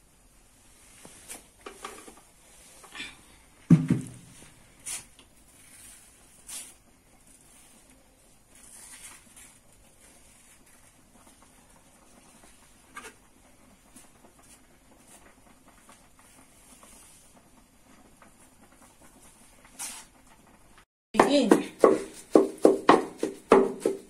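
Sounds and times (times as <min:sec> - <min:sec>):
rustling and scratching of food handling: 0:00.6 - 0:03.2, 0:04.2 - 0:20.7.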